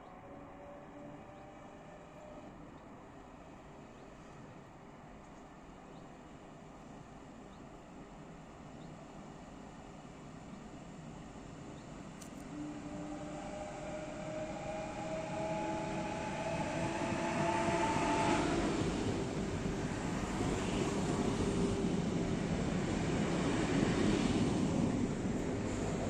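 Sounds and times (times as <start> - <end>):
electric train whine: 0.0 - 4.6, 10.7 - 26.0
wheels rumbling on rails: 11.6 - 26.0.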